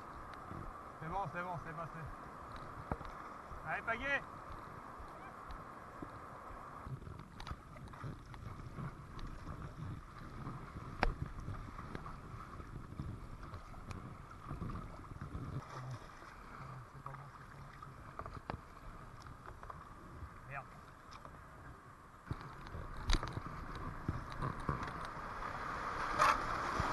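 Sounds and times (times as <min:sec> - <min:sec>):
wind gusts on microphone: 0:00.0 - 0:16.1
kayak paddle strokes splashing: 0:06.9 - 0:20.0, 0:22.2 - 0:26.9
rushing white water: 0:23.8 - 0:26.9.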